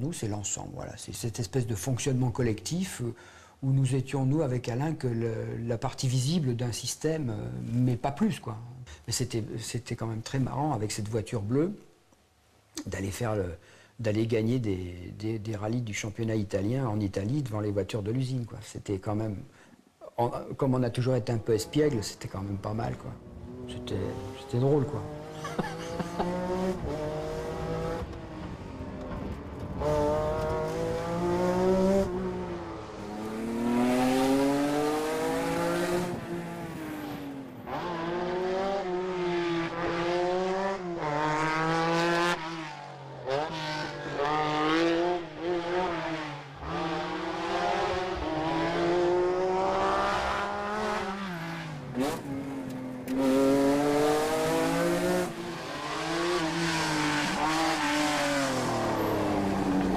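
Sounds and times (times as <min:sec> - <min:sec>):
rally car engine revving hard: 0:23.2 - 0:59.9.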